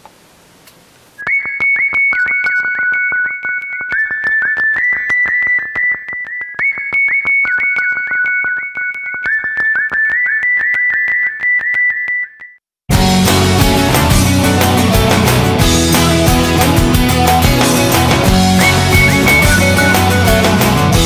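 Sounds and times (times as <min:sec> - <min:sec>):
electronic lead melody: 0:12.9 - 0:21.0.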